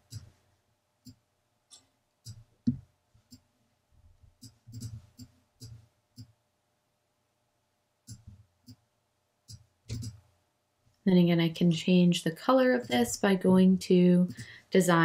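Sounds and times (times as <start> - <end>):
faint steady hum: 0.0 - 15.0
computer mouse clicking: 4.4 - 6.4, 8.0 - 8.8, 9.5 - 10.2, 14.2 - 14.6.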